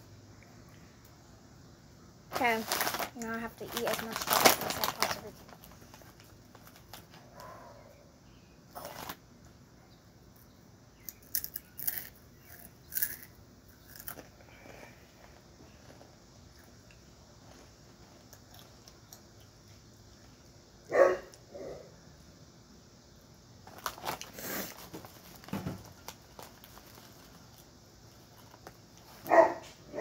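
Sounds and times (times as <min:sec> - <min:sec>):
sharp crackles: 0:02.3 - 0:07.4
dog barking: 0:07.4 - 0:08.0, 0:20.9 - 0:21.9, 0:29.3 - 0:30.0.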